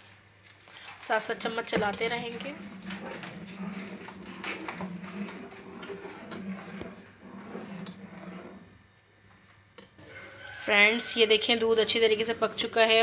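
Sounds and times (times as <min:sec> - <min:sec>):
metal spoon scraping steel pot: 0:01.4 - 0:08.7, 0:10.0 - 0:13.0.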